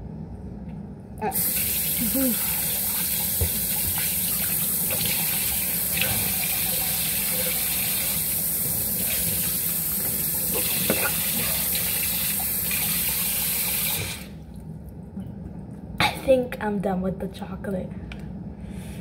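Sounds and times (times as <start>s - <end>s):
tap running into sink: 3.2s - 4.1s.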